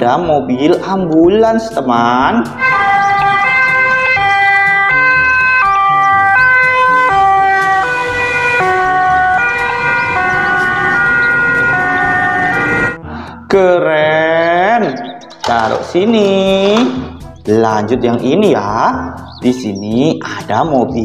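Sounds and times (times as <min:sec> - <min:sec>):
two-tone ambulance siren: 0:02.6 - 0:13.0.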